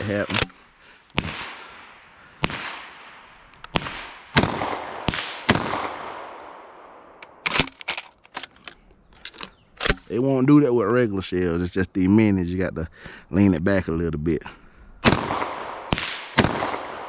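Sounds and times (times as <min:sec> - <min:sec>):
shotgun shots with echo: 0:01.2 - 0:06.6, 0:15.0 - 0:17.0
shotgun clicks and clacks: 0:07.2 - 0:10.1.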